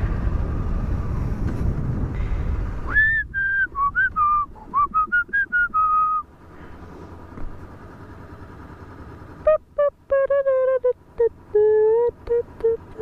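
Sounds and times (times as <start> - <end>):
motorcycle low hum: 0.0 - 13.0
person whistling tune: 2.9 - 6.2.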